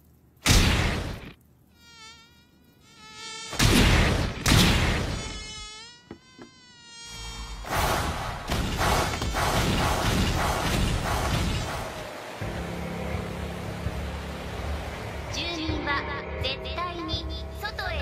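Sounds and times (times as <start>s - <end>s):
high wavering mosquito whine: 1.7s - 3.6s, 5.0s - 7.7s
loud rushing swipes: 7.6s - 12.2s
steady rushing noise: 7.7s - 15.7s.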